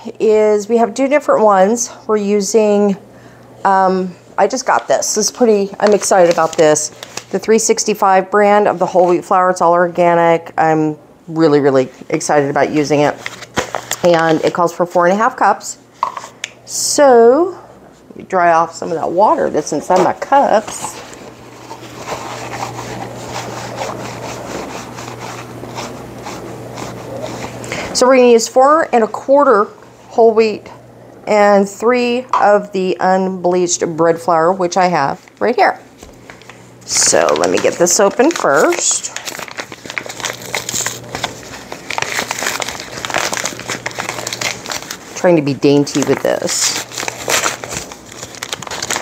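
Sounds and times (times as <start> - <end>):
steady low hum: 0.0 - 49.0
paper bag tearing and crinkling: 5.8 - 7.3, 20.6 - 27.9, 36.9 - 49.0
towel rubbing plastic cups: 19.6 - 27.9.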